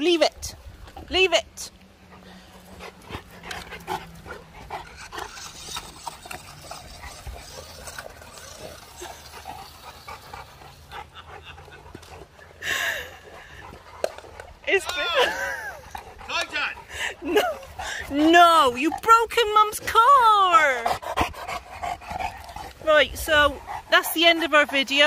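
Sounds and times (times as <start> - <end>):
dogs panting and snuffling: 0.0 - 25.0
dog chewing plastic toy: 3.4 - 10.2.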